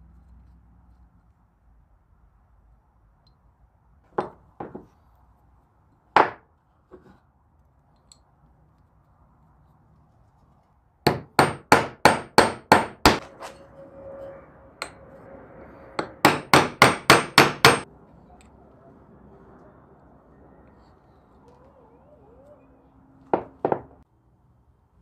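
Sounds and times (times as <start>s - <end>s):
hammer tapping: 11.1s - 13.2s, 16.0s - 17.8s.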